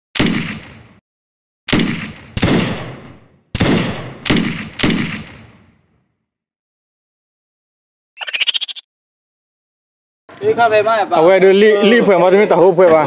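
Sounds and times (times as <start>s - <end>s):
gunshots with echo: 0.2s - 1.0s, 1.7s - 5.9s.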